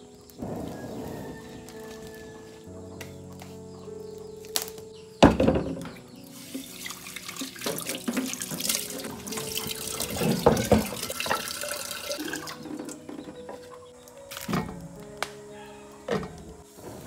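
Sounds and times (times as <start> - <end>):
soft background music: 0.0 - 17.0
tap water running into sink: 6.5 - 12.9
small clatters and knocks: 7.4 - 11.5.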